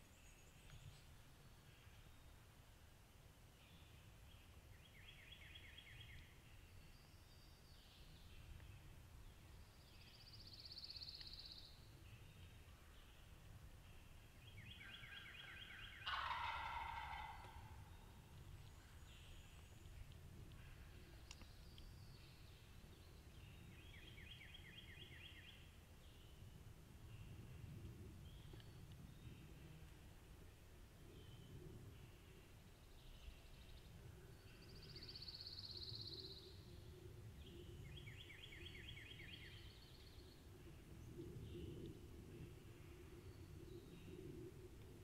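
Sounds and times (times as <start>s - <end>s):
distant turkey gobbling: 15.9s - 17.9s.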